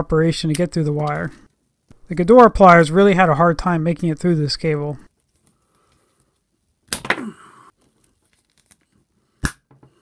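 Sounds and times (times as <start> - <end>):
pliers creaking through cable: 7.8 - 9.0.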